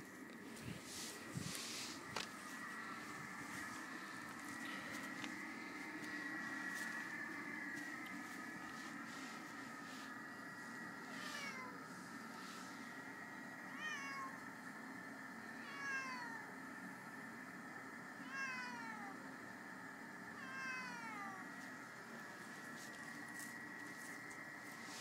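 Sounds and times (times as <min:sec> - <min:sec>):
cat meowing: 0:11.2 - 0:11.8, 0:13.7 - 0:14.4, 0:15.6 - 0:16.5, 0:18.2 - 0:19.2, 0:20.4 - 0:21.4.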